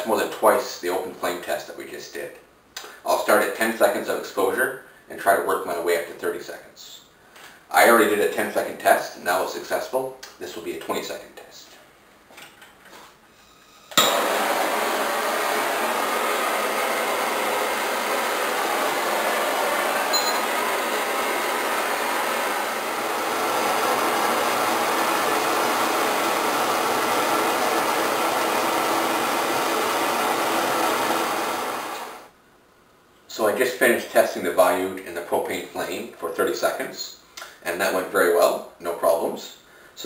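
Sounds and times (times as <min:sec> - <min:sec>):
torch igniting with a pop: 0:14.0 - 0:14.4
hissing torch flame: 0:14.0 - 0:32.3.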